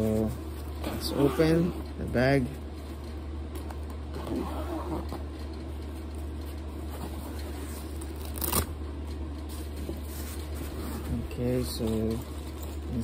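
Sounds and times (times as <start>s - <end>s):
steady low hum: 0.0s - 13.0s
zipper being pulled open: 0.9s - 1.8s, 4.1s - 5.2s.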